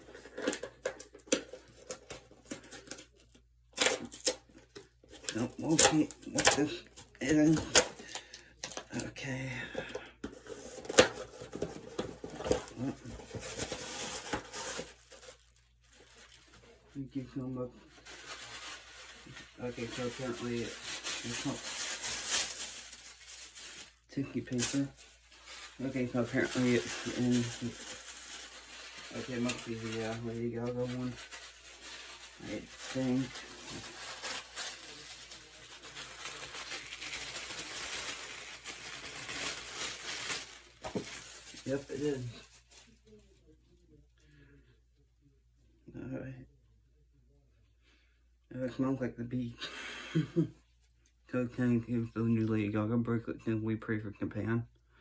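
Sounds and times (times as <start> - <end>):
wrapping rustling and crinkling: 0.0 - 43.5.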